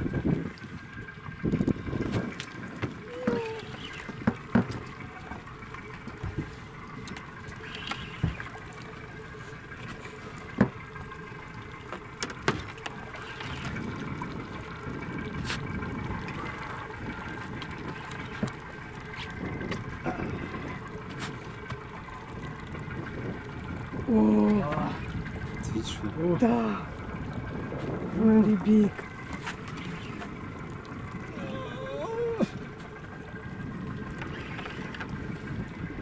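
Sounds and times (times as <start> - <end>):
water lapping against boat: 0.0 - 36.0
sharp knocks and clicks: 4.2 - 4.9, 10.5 - 10.8, 11.9 - 12.8.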